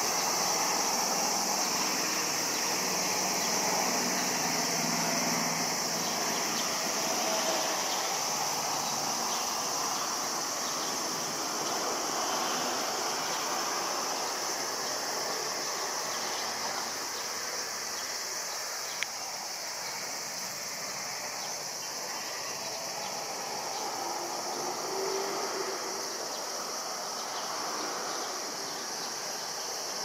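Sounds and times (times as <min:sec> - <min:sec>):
high-pitched insect drone: 0:00.0 - 0:30.0.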